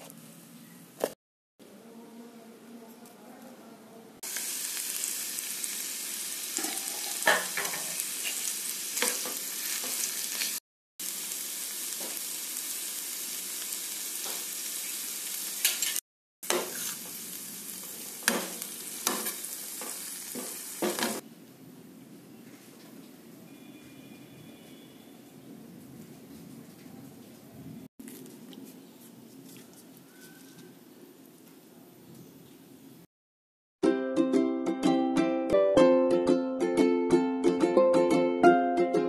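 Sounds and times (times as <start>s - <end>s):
food sizzling in oil: 4.2s - 21.2s
spoon scraping metal pan: 6.6s - 10.6s, 15.6s - 17.2s.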